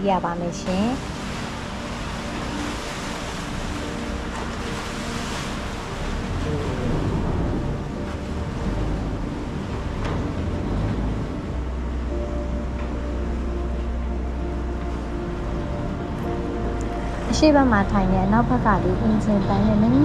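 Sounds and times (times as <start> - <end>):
boat engine rumbling: 0.0 - 20.0
water churning against hull: 0.0 - 20.0.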